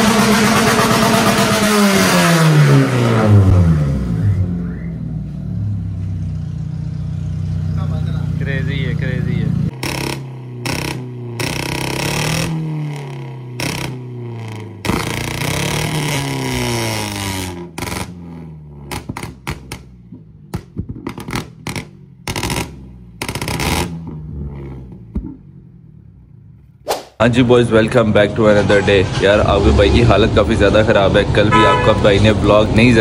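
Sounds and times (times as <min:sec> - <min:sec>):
car engine revving: 0:00.0 - 0:33.0
exhaust pops and bangs: 0:09.7 - 0:25.6.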